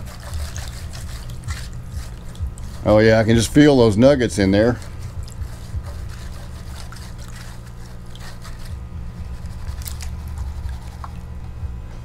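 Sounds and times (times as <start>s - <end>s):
small splashes and drips: 0.0s - 2.8s, 9.6s - 11.4s
water sloshing in a tub: 0.0s - 11.4s
low hum: 0.0s - 12.0s.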